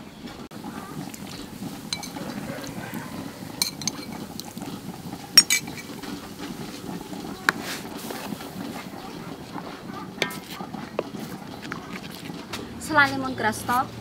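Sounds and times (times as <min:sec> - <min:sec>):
liquid pouring into wok: 0:01.0 - 0:08.7
utensils clinking against wok: 0:01.1 - 0:02.4, 0:03.5 - 0:06.2, 0:10.2 - 0:11.2.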